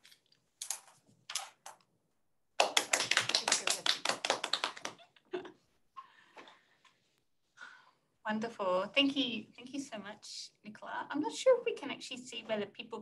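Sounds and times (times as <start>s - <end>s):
people clapping: 2.6s - 5.3s.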